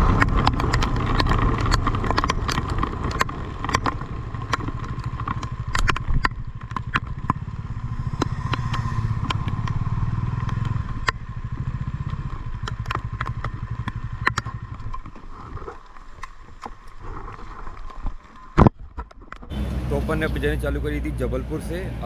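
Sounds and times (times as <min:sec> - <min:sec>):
motorcycle engine running: 0:00.0 - 0:16.2, 0:19.5 - 0:22.0
sharp clicks and ticks: 0:00.0 - 0:19.5.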